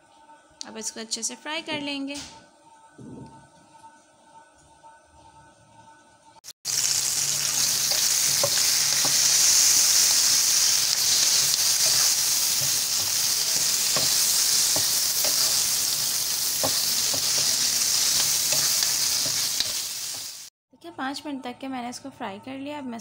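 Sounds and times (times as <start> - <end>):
chillies sizzling in hot oil: 6.7 - 20.5
spatula knocking against pan: 11.8 - 19.5.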